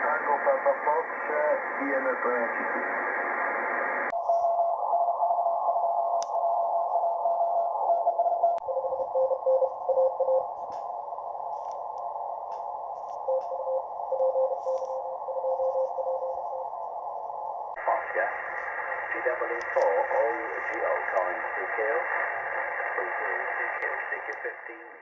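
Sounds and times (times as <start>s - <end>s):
radio hiss: 0.0s - 5.2s, 8.6s - 16.8s, 17.7s - 25.0s
morse code tones: 6.8s - 10.7s, 13.1s - 16.7s.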